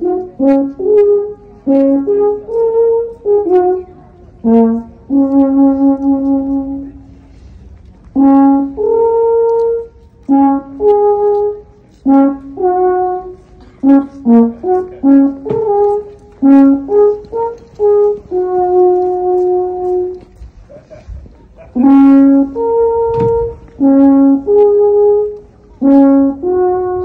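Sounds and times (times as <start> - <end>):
brass horn playing slow tune: 0.0 - 20.4, 21.5 - 27.0.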